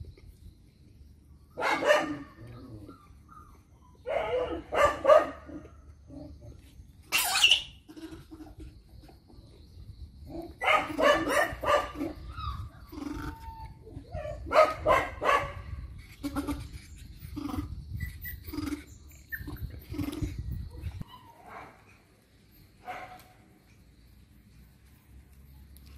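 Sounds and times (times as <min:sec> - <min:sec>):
puppy yelping: 0:07.1 - 0:08.4, 0:10.6 - 0:15.4, 0:17.3 - 0:20.3.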